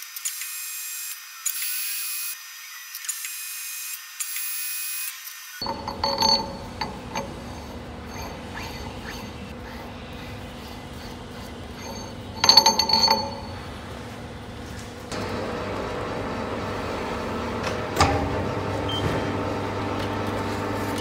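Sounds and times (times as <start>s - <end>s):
steel nut clanking: 5.6s - 15.0s
lathe humming: 5.6s - 21.0s.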